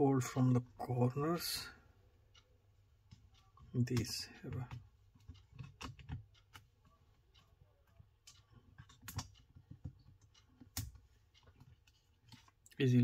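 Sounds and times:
fingers clicking and tapping tablet: 2.4 - 12.8.

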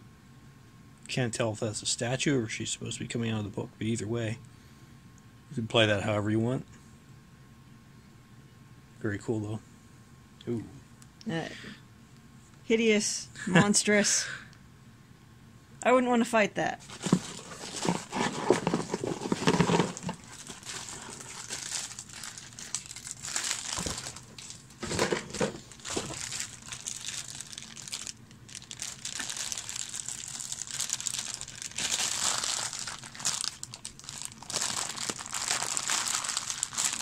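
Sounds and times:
plastic bags crinkling: 16.8 - 37.0.

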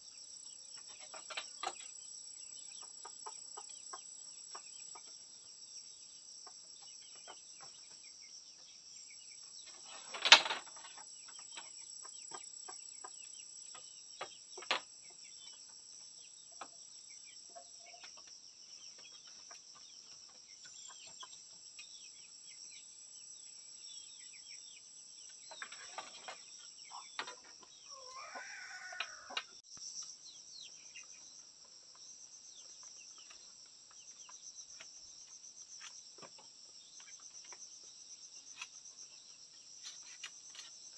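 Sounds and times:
insects droning: 0.0 - 40.9
hen clucking: 26.9 - 29.5.

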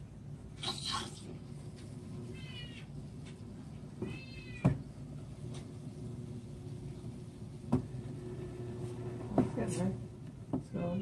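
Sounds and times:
low pump hum: 0.0 - 11.0
cat meowing: 2.3 - 2.9, 4.0 - 4.8.

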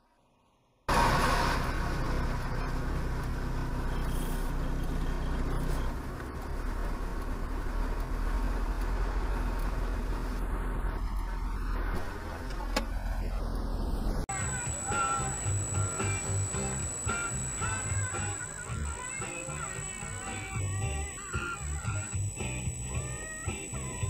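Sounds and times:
traffic noise: 0.9 - 14.8
car engine idling: 0.9 - 24.0.

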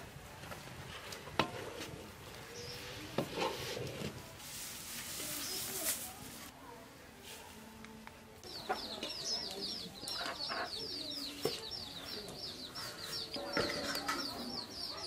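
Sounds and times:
chickens clucking: 8.4 - 15.0.

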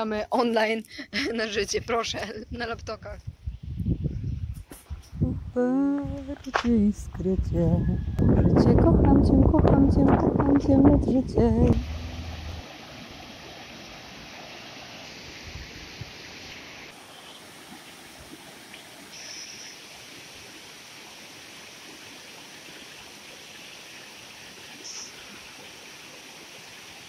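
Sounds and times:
stream rushing over rocks: 11.8 - 27.0.

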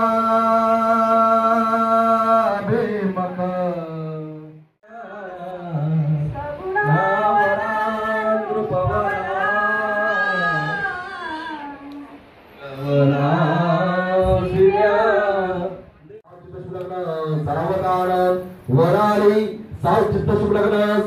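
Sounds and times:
person singing chant-like melody: 0.0 - 15.8.

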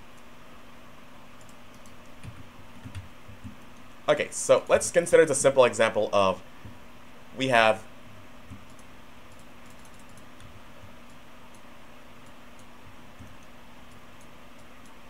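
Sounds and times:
steady low hum: 0.0 - 15.0
computer mouse clicks and ticks: 1.4 - 3.9, 8.4 - 15.0.

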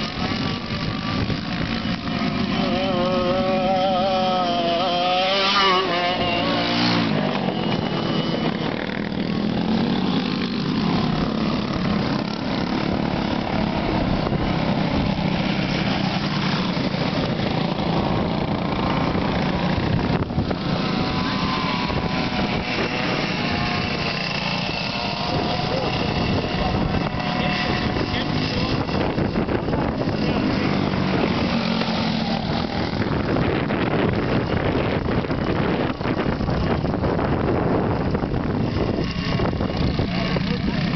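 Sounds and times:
kart engines revving: 0.0 - 40.9.

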